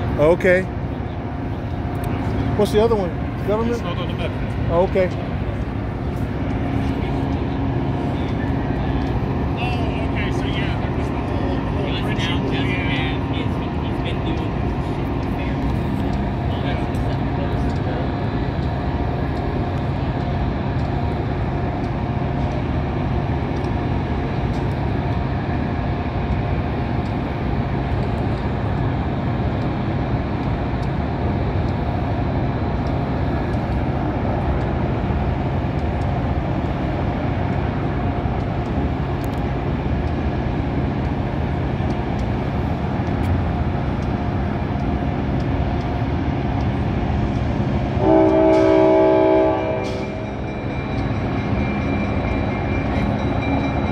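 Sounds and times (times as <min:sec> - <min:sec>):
train horn chord: 0:48.0 - 0:50.3.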